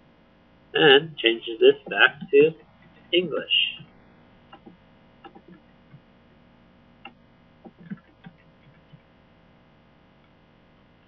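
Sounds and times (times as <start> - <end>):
low room hum: 0.0 - 11.0
keyboard and mouse clicks: 4.5 - 5.6, 7.0 - 9.0.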